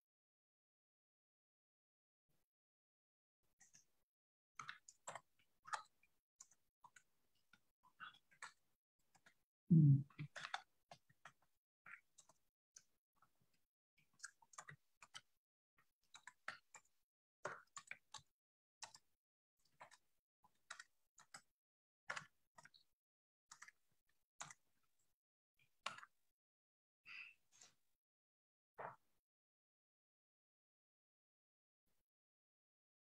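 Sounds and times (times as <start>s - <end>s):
quiet clicks and taps: 24.4s - 26.2s.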